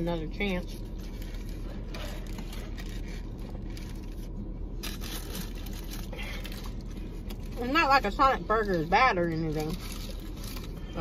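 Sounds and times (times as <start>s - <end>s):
low hum inside car: 0.0s - 11.0s
paper wrapper rustling: 0.9s - 6.9s.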